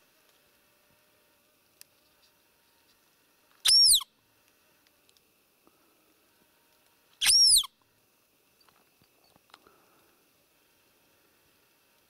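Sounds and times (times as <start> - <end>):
deer call squeak: 3.6 - 4.1, 7.2 - 7.7.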